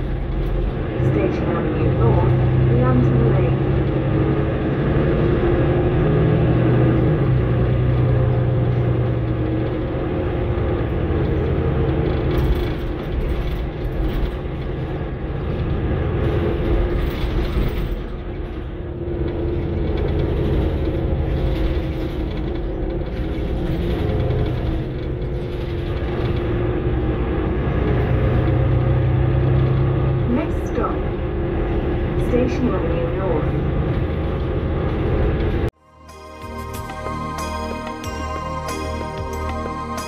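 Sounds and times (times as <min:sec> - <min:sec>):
bus engine drone: 0:00.0 - 0:40.0
road rumble: 0:00.0 - 0:40.0
cabin noise: 0:07.4 - 0:35.7.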